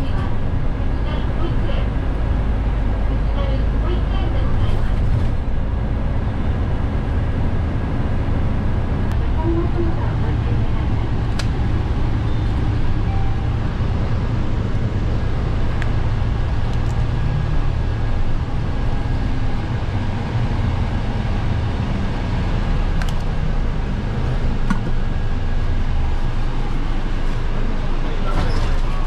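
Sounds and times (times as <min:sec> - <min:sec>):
bus engine rumble: 0:00.0 - 0:29.0.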